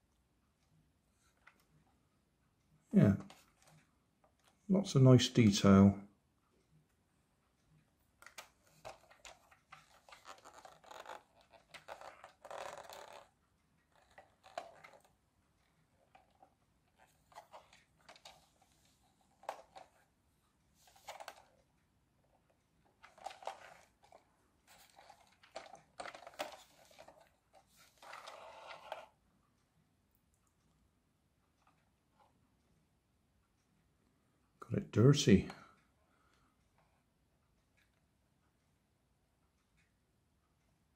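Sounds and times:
plastic toy scraping and rustling: 0:08.2 - 0:13.3, 0:13.9 - 0:15.1, 0:16.1 - 0:20.1, 0:20.8 - 0:21.6, 0:23.0 - 0:29.2.

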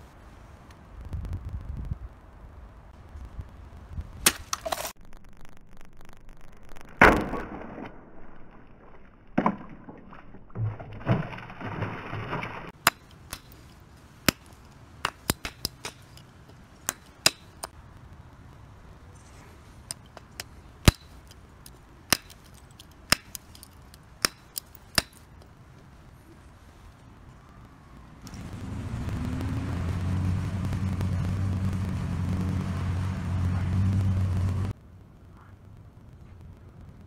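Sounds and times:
water splashing: 0:07.2 - 0:12.8.

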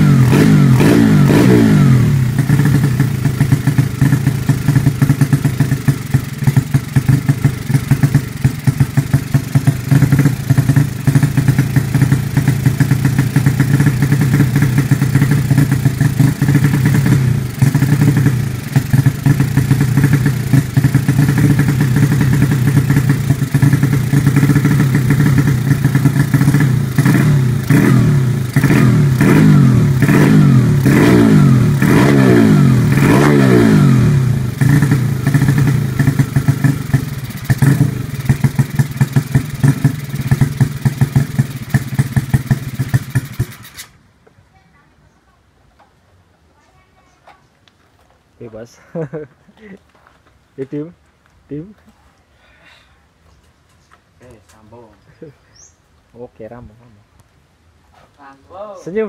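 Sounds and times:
motorcycle engine running: 0:00.0 - 0:43.9
engine revving: 0:00.0 - 0:44.0.

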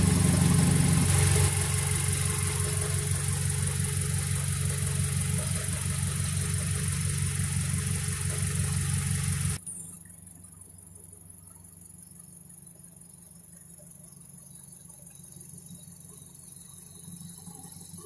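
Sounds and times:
steady hiss: 0:00.0 - 0:09.6
car engine idling: 0:00.0 - 0:12.5.

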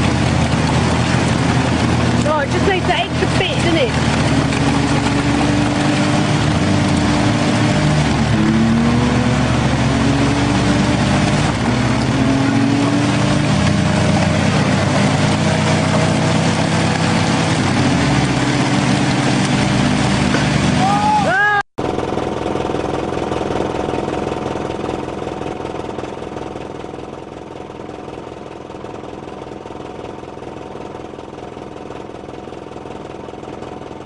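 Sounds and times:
off-road engine revving: 0:00.0 - 0:25.8.

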